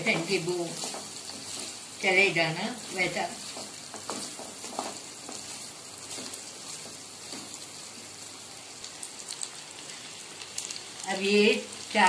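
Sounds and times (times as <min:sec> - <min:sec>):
wooden spatula scraping pan: 0:00.0 - 0:07.8
meat sizzling in hot oil: 0:00.0 - 0:12.0.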